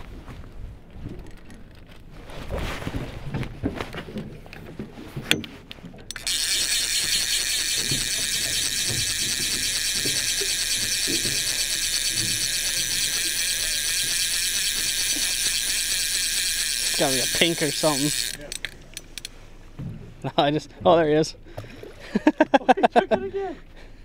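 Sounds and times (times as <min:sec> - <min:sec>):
fishing reel ratchet buzzing: 0:06.1 - 0:19.3.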